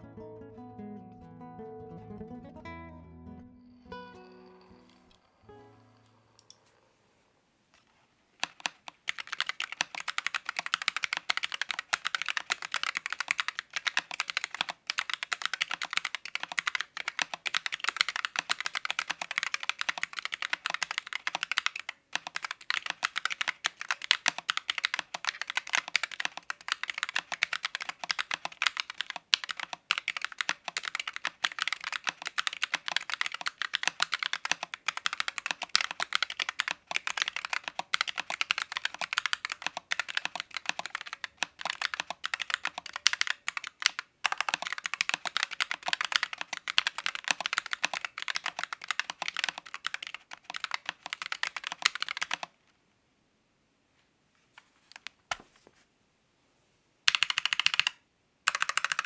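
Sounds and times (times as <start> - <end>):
mechanical keyboard typing: 8.4 - 52.6, 57.1 - 59.0.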